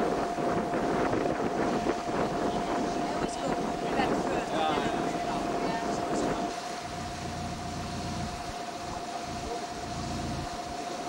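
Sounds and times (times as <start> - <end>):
steady rushing noise: 0.0 - 11.0
thin high whine: 0.0 - 11.0
wind buffeting microphone: 0.0 - 11.0.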